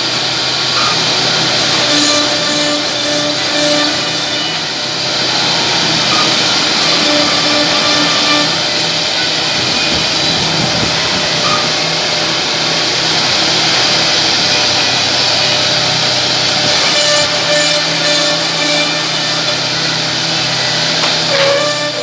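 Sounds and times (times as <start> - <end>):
router spindles cutting wood: 1.2 - 10.4, 16.6 - 22.0.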